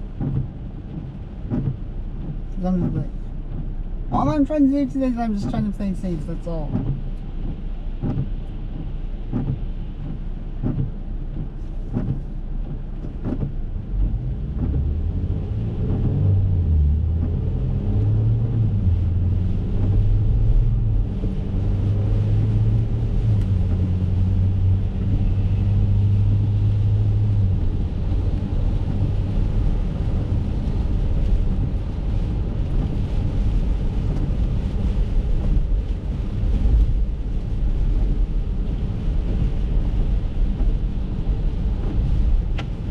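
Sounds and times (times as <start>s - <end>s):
car engine drone: 0.0s - 42.9s
light ticks: 23.3s - 23.9s, 41.8s - 42.9s.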